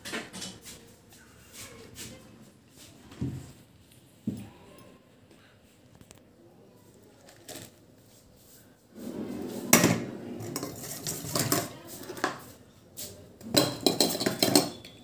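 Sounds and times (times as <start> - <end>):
hand clinking in steel bowl: 13.5 - 15.0.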